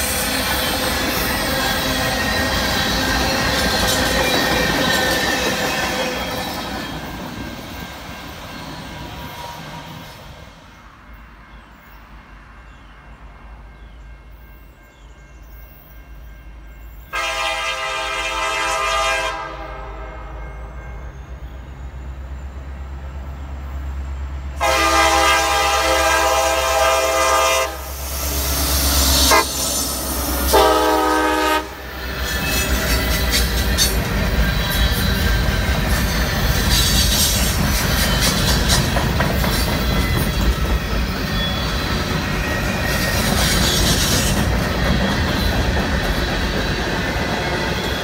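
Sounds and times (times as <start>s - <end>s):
diesel locomotive rumble: 0.0s - 10.6s, 17.2s - 48.0s
locomotive air horn blasts: 17.1s - 20.4s, 24.6s - 28.0s, 29.1s - 32.7s.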